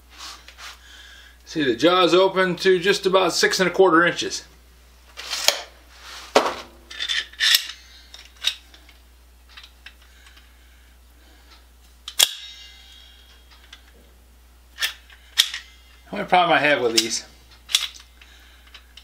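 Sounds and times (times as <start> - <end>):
metal tools clicking and clacking: 6.9 - 10.4, 14.8 - 16.0, 16.8 - 19.0
clamp snap with metallic ring: 12.1 - 13.9.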